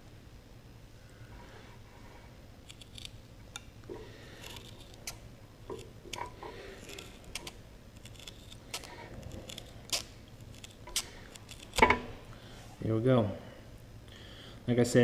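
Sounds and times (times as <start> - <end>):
tin snips cutting rubber: 4.4 - 12.1.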